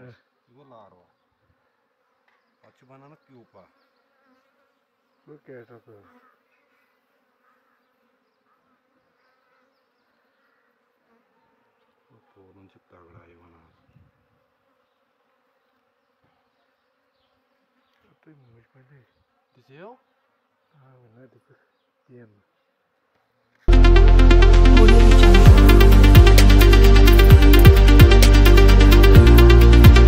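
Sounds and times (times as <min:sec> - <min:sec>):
bees humming: 0:23.7 - 0:30.0.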